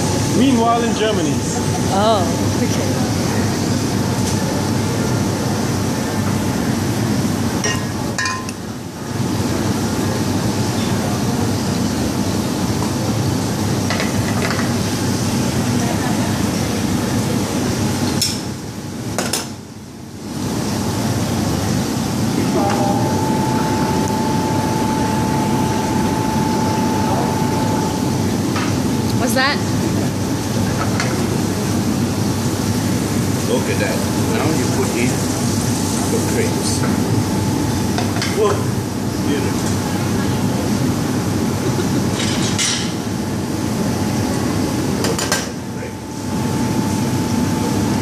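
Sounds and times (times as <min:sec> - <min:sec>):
kitchen extractor hood roar: 0:00.0 - 0:48.0.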